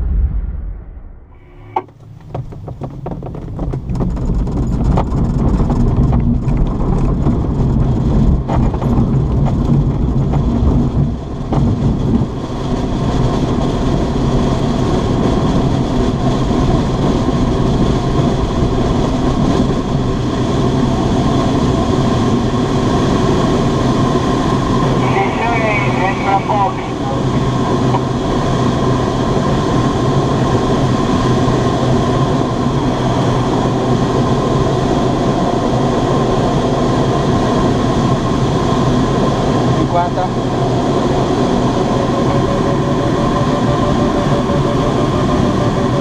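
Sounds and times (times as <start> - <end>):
plane engine drone: 0.0 - 3.6, 5.2 - 46.0
wheel rumbling over grass: 1.4 - 12.2
airframe rattling: 1.5 - 6.9.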